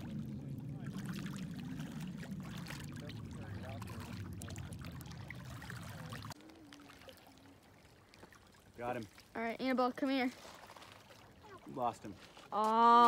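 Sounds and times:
low steady rumble: 0.0 - 6.6
small waves lapping on pebbles: 0.0 - 13.0.

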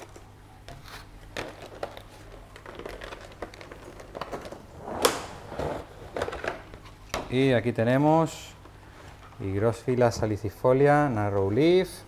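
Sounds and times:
plastic trays clicking and crinkling: 1.3 - 4.6.

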